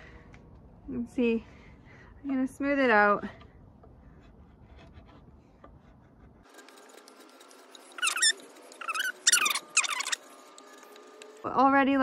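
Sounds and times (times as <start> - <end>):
knife blade scraping wood: 3.2 - 11.3.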